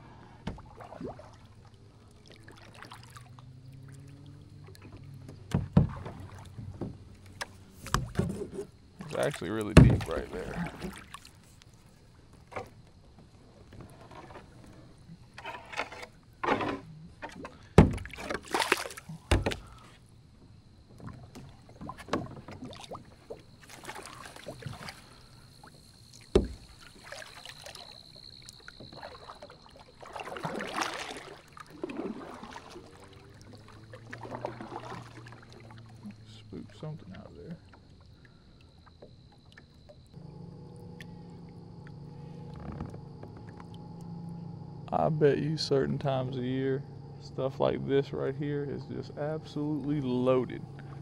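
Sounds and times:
paddle splashing in water: 0.0 - 20.0, 20.9 - 44.1
paddle knocks: 4.8 - 11.2, 15.4 - 19.9, 26.2 - 27.2.

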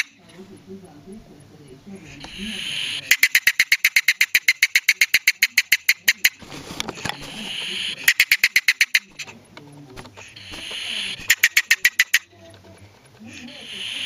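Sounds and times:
polecat chattering clicks: 0.0 - 0.4, 2.1 - 14.0
polecat hissing: 1.9 - 3.4, 6.7 - 8.3, 10.0 - 11.8, 13.2 - 14.0.

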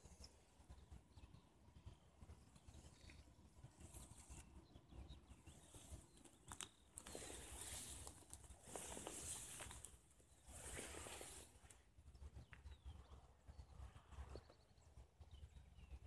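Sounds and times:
footsteps through tall grass: 7.0 - 11.7.

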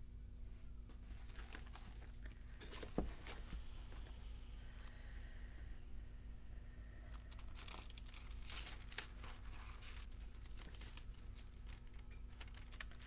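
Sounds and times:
steady low hum: 0.0 - 13.0
rustling: 0.9 - 5.0, 7.0 - 13.0.

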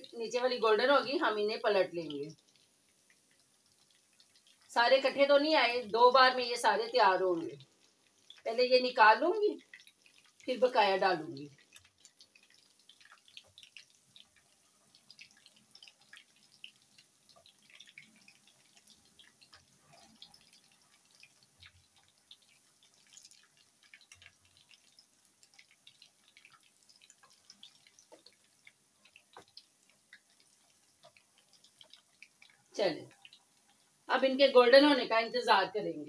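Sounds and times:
hot oil crackling and popping: 0.0 - 36.0.

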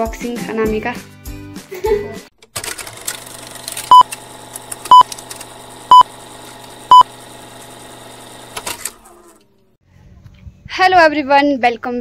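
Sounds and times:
film projector whirr: 2.4 - 9.7.

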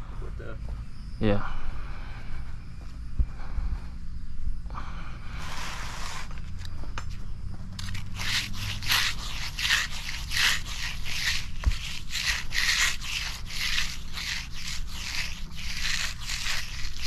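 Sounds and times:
hand float scraping wet concrete: 7.8 - 17.0.

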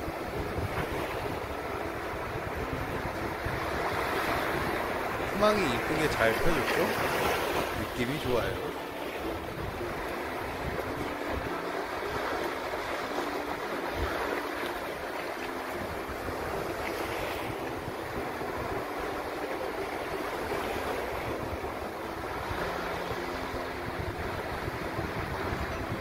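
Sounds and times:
small waves breaking on beach: 0.0 - 26.0
wind buffeting microphone: 0.0 - 26.0.

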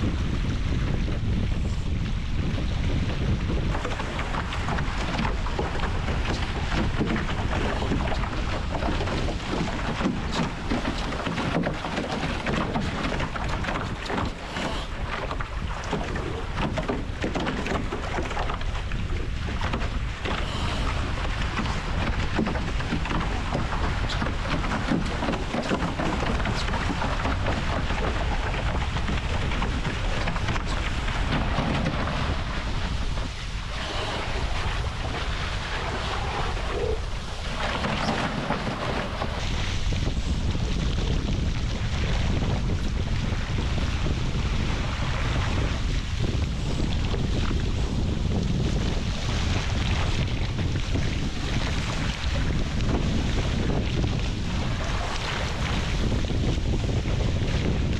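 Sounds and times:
water rushing along hulls: 0.0 - 57.9
wind buffeting microphone: 0.0 - 57.9
spray splashes: 33.7 - 35.0.

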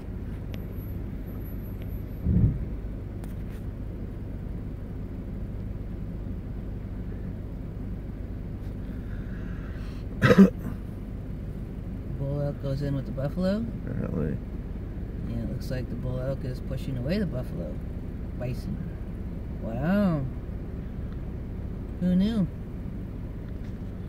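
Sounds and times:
vehicle engine rumbling: 0.0 - 24.0
low thump: 2.2 - 2.7.

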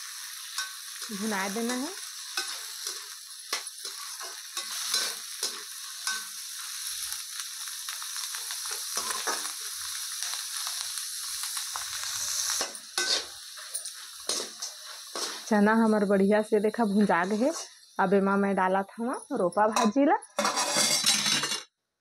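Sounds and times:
chickpeas sizzling in oil: 0.0 - 21.6
ladle scraping and clinking pan: 12.6 - 15.4, 19.8 - 21.6.

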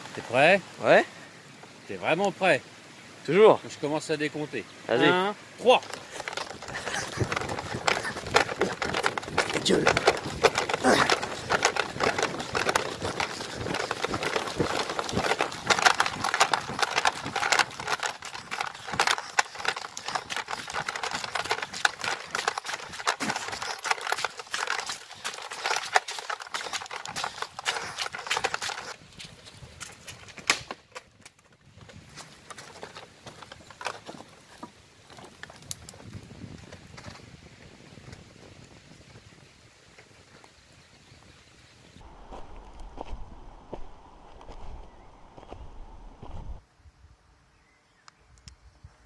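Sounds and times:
leaves and branches brushing: 4.2 - 38.3
running footsteps in undergrowth: 5.0 - 41.3
twig cracks: 30.4 - 31.4.

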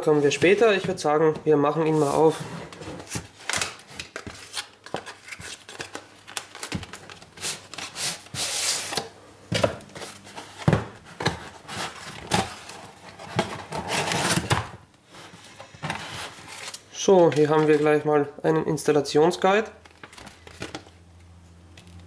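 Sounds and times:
cardboard rubbing and scraping: 1.8 - 3.4.

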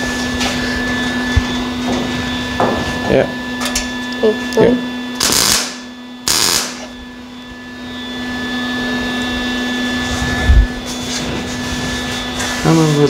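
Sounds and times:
steady hum: 0.0 - 13.0
welder crackling hiss: 5.2 - 6.9.

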